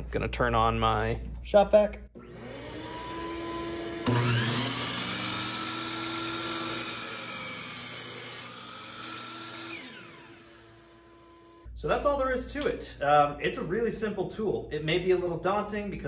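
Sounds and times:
miter saw motor whining: 2.2 - 11.6
shop vacuum running: 2.2 - 11.8
saw blade cutting wood: 3.4 - 11.6.

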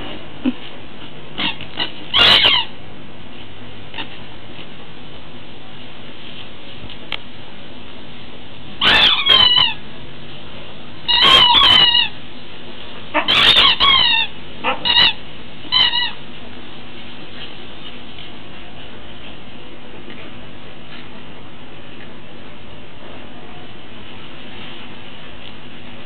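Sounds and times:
steady background hiss: 0.0 - 26.0
squeaky dog toy squeaking: 1.4 - 2.7, 8.8 - 9.8, 11.1 - 12.2, 13.2 - 16.2.

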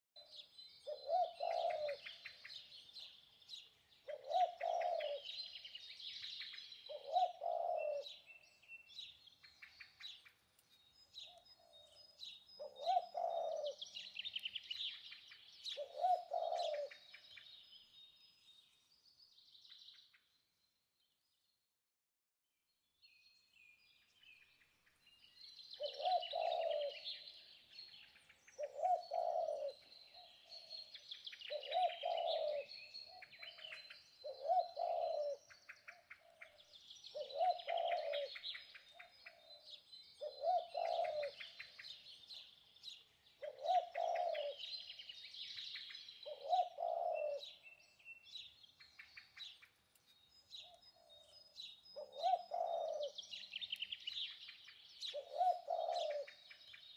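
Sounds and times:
small birds chirping and twittering: 0.2 - 21.7, 22.7 - 56.9
low bird call: 55.0 - 56.4.

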